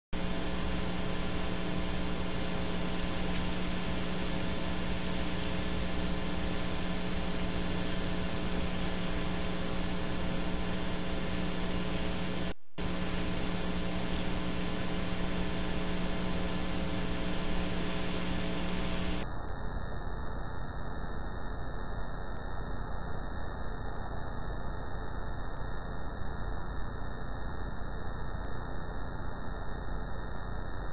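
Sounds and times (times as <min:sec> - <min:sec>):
electrical hum: 0:00.2 - 0:30.9.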